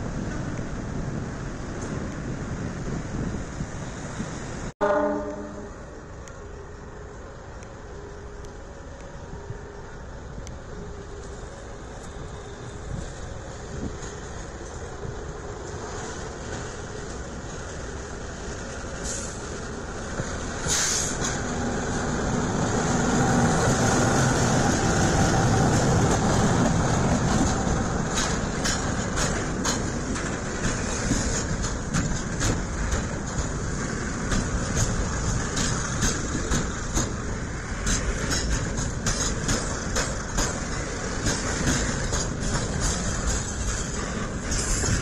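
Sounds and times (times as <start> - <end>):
train wheels clicking over rail joints: 11.1 - 45.0.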